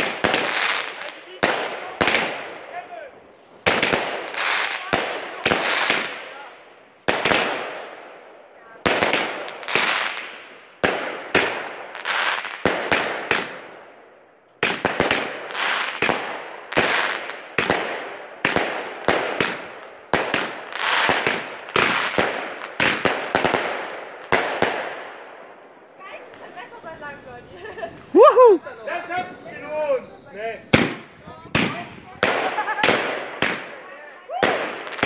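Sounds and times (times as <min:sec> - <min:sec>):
firework cake bangs: 0:03.6 - 0:07.9, 0:08.8 - 0:13.7, 0:14.6 - 0:25.1, 0:30.7 - 0:35.0.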